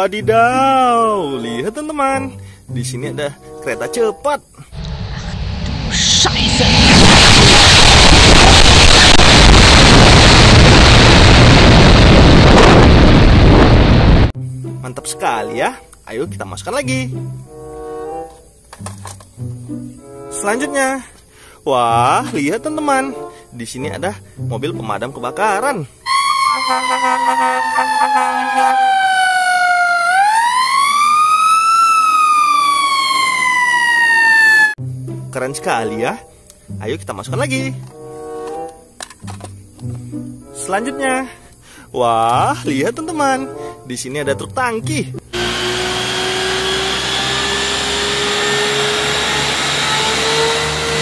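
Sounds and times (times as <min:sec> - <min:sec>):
fire truck siren wailing: 0:26.0 - 0:34.8, 0:45.3 - 0:51.0
lower steady siren tone: 0:26.0 - 0:34.8
pump humming with rising whine: 0:45.4 - 0:51.0.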